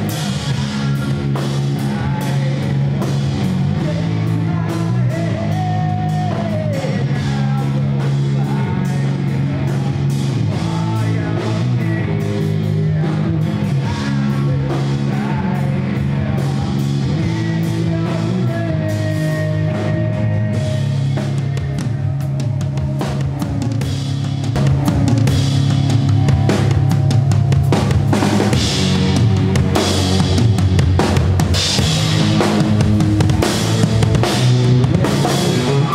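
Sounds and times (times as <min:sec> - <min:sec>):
drum kit beat: 0:00.0 - 0:35.9
electric bass and guitar: 0:00.0 - 0:35.9.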